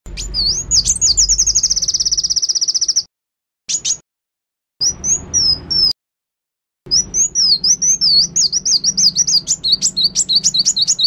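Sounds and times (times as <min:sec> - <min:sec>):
bird singing and trilling: 0:00.1 - 0:03.1, 0:03.7 - 0:04.0, 0:04.8 - 0:06.0, 0:06.9 - 0:11.0.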